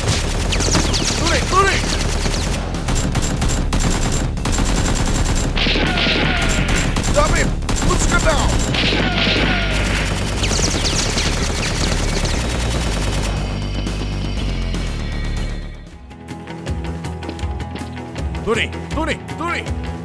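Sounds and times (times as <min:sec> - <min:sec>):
automatic gunfire: 0:00.0 - 0:13.6.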